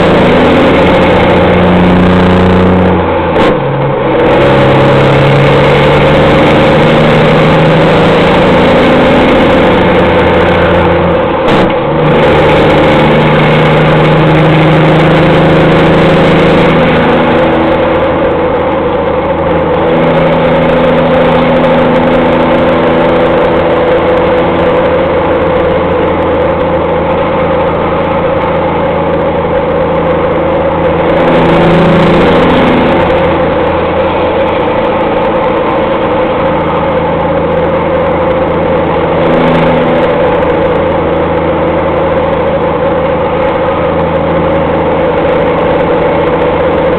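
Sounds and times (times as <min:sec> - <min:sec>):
diesel truck engine running loud: 0:00.0 - 0:46.9.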